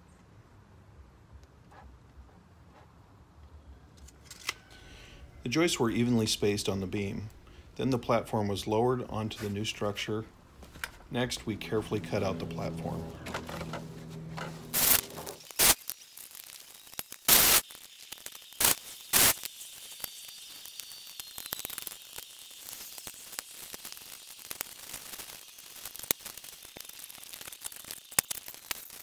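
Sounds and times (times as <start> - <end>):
pole pruner cutting wood: 10.8 - 29.0
small clicks: 14.4 - 29.0.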